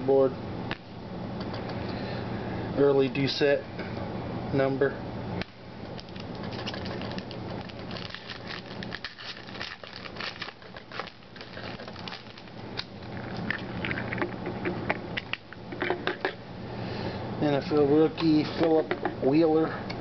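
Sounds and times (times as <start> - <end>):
steady low hum: 0.0 - 20.0
trading cards shuffling: 5.9 - 14.6.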